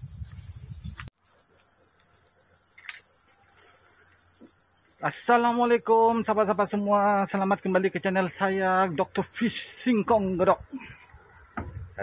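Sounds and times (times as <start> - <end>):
high-pitched insect chorus: 0.0 - 12.0
footsteps on wooden boardwalk: 10.8 - 12.0.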